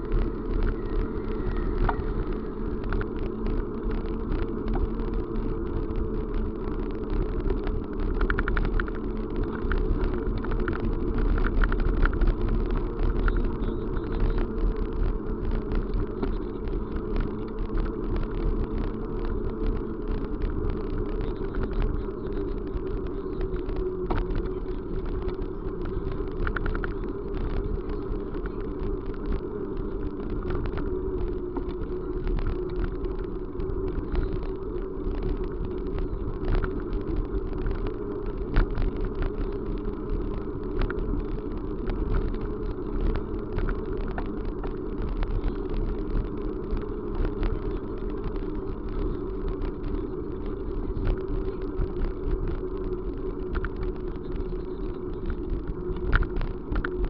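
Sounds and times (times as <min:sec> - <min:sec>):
vehicle running rumble: 0:00.0 - 0:57.0
small clicks: 0:17.2 - 0:57.0.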